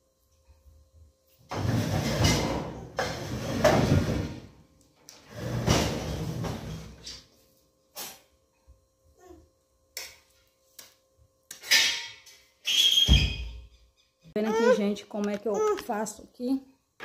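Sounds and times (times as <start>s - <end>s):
stove scraping across tile floor: 1.4s - 4.5s, 5.2s - 7.2s.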